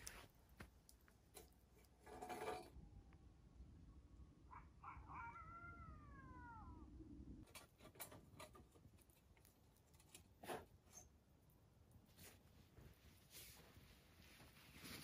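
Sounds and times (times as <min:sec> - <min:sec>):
meow-like animal call: 0:04.8 - 0:07.0.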